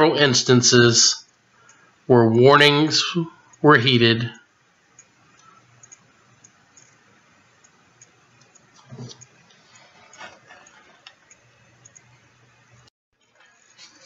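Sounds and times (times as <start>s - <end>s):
faint low hum: 0.0s - 14.0s
faint clicks and ticks: 1.2s - 2.1s, 4.4s - 14.0s.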